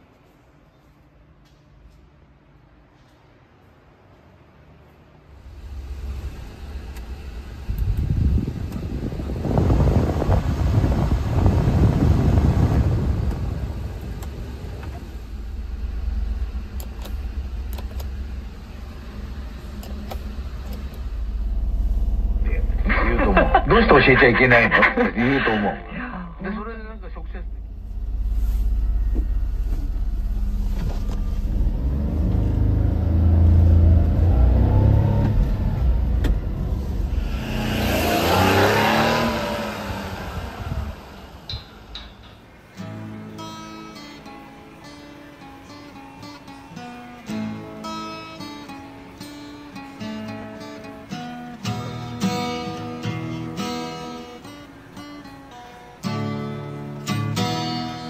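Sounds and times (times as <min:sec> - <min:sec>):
road noise: 0:00.0 - 0:58.0
ventilation fan blowing air: 0:00.0 - 0:58.0
engine idling: 0:05.4 - 0:42.8.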